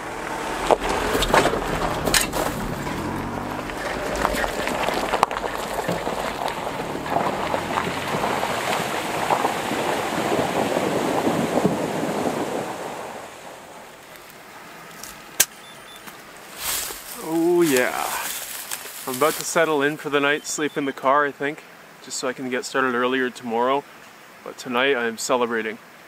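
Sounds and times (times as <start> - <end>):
tyres splashing through puddle: 0.0 - 15.4, 16.2 - 20.7.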